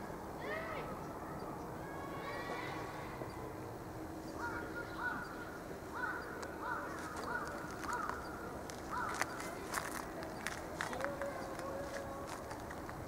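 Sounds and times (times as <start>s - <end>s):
bird calling: 4.2s - 12.9s
sharp clicks: 6.3s - 11.7s.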